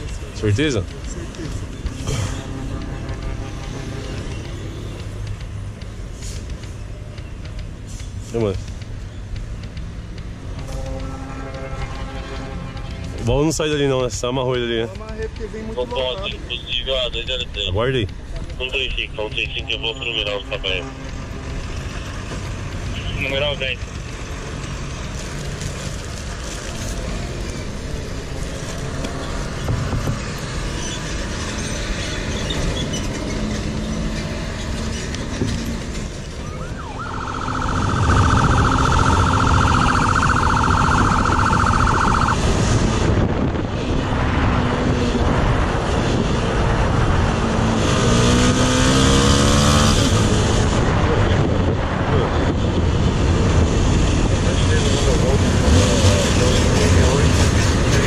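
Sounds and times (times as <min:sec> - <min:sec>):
traffic noise: 0:00.0 - 0:58.0
motorcycle engine: 0:24.0 - 0:43.1
steady high tone: 0:36.4 - 0:42.4
wind noise: 0:37.6 - 0:58.0.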